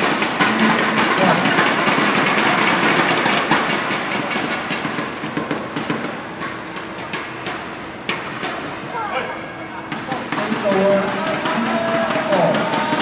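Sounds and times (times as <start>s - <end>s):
rackets striking shuttlecock: 0.0s - 9.0s
crowd din echoing in hall: 0.0s - 13.0s.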